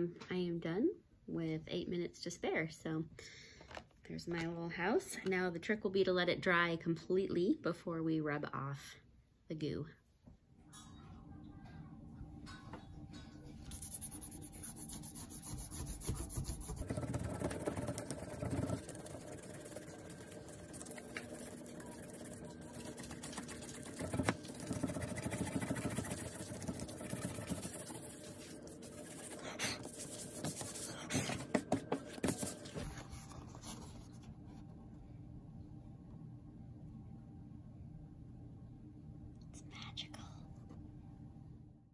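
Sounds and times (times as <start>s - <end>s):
fingers scuffing paper: 13.7s - 17.0s, 27.0s - 34.2s.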